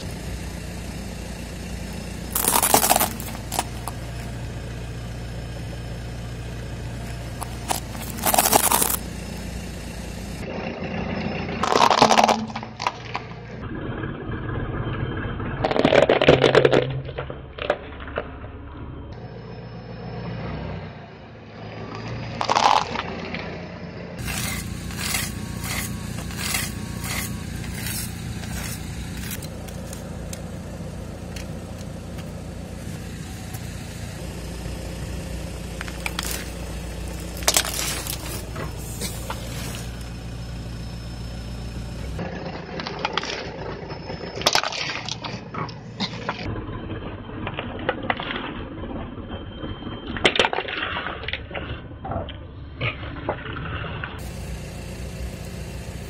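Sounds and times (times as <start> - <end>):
car engine running: 0.0 - 56.0
plastic toys cracking under tyre: 2.3 - 4.0, 7.4 - 9.0, 11.6 - 13.4, 15.6 - 18.4, 21.9 - 23.5, 35.8 - 38.5, 42.3 - 43.8, 44.4 - 46.5.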